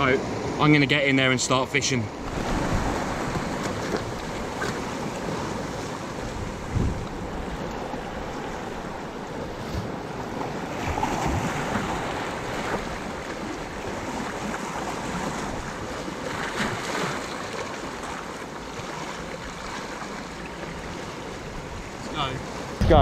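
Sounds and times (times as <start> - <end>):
wind buffeting microphone: 2.2 - 14.5, 21.4 - 23.0
small waves washing over rocks: 2.2 - 23.0.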